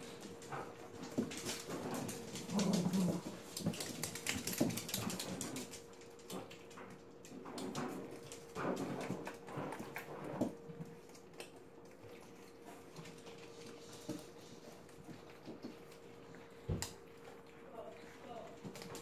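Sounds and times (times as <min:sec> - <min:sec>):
puppies play-fighting: 0:00.0 - 0:19.0.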